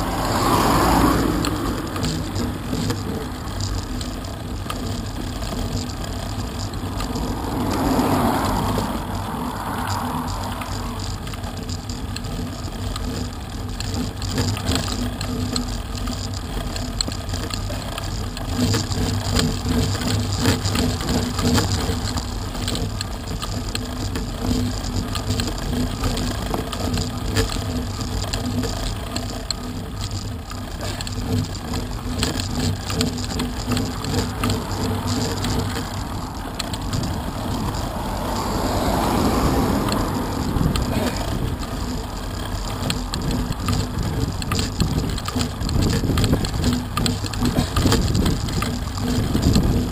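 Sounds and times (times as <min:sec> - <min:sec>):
car passing close: 0:00.0 - 0:03.2, 0:06.7 - 0:12.4, 0:33.6 - 0:43.4
bike rattles: 0:00.0 - 0:49.9
bike tyres rumbling on rough tarmac: 0:00.0 - 0:49.9.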